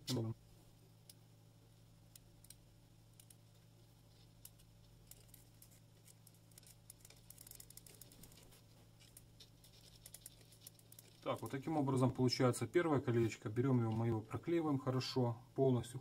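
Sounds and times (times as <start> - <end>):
steady low hum: 0.0 - 16.0
small clicks and rustles of hands: 2.1 - 11.8.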